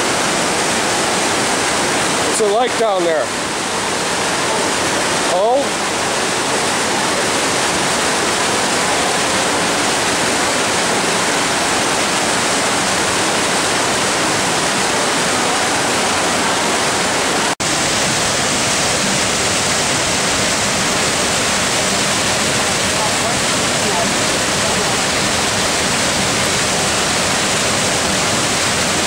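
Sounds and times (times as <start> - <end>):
water rushing through rocky creek: 0.0 - 29.0.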